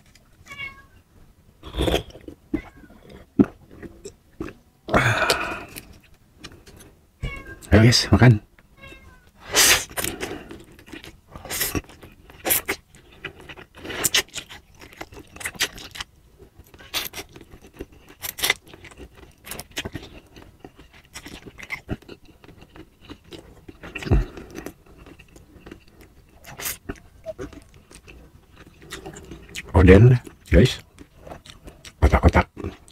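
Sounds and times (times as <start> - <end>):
person slurping and chewing noodles: 9.4 - 29.7.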